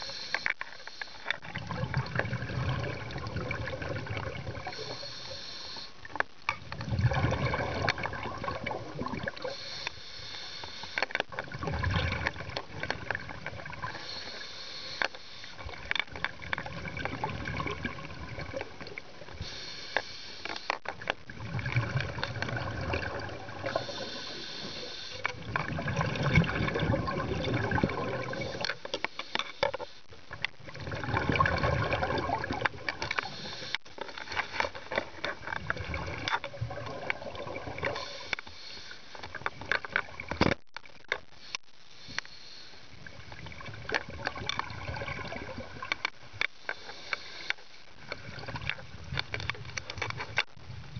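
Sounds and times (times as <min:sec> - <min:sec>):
regulator hiss on inhale: 0:00.0 - 0:01.4, 0:04.6 - 0:06.2, 0:09.3 - 0:11.3, 0:13.7 - 0:15.8, 0:19.2 - 0:20.8, 0:23.6 - 0:25.4, 0:28.1 - 0:30.2, 0:33.0 - 0:35.0, 0:37.8 - 0:39.4, 0:41.3 - 0:43.2, 0:46.5 - 0:48.2
exhaled bubbles rumbling: 0:01.4 - 0:04.9, 0:06.6 - 0:09.6, 0:11.3 - 0:14.0, 0:15.6 - 0:19.4, 0:21.0 - 0:24.0, 0:25.3 - 0:28.7, 0:30.2 - 0:33.2, 0:35.0 - 0:38.0, 0:43.0 - 0:46.0.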